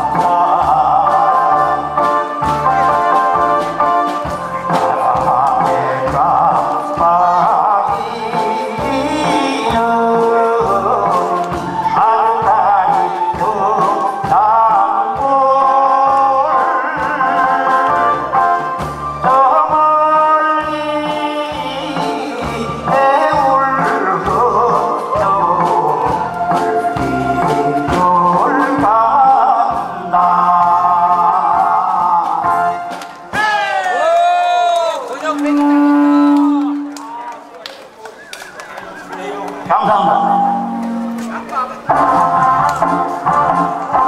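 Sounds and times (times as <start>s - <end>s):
man singing into a microphone: 0.0s - 32.9s, 35.4s - 36.9s, 39.6s - 40.8s
karaoke backing track: 0.0s - 44.0s.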